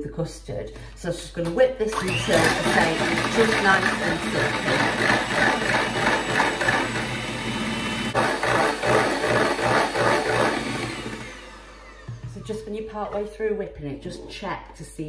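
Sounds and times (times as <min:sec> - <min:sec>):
electric hand mixer whipping cream: 0:01.9 - 0:12.4.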